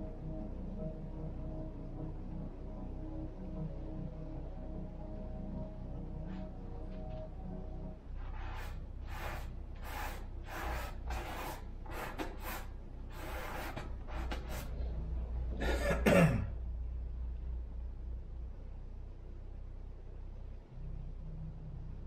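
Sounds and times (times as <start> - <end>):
paintbrush strokes on canvas: 8.1 - 14.8.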